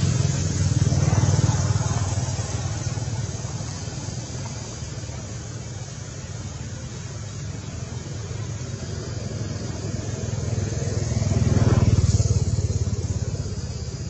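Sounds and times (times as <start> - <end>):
engine throbbing: 0.0 - 14.0.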